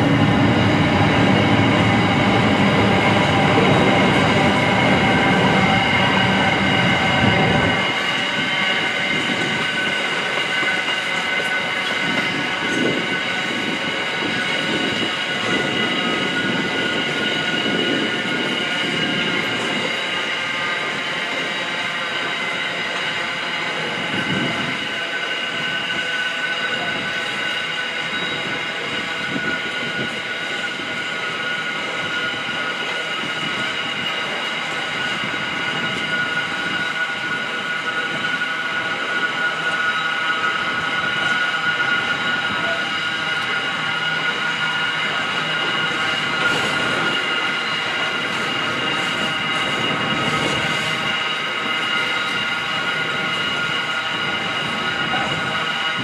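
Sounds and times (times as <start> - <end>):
high-pitched wheel squeal: 0.0 - 56.0.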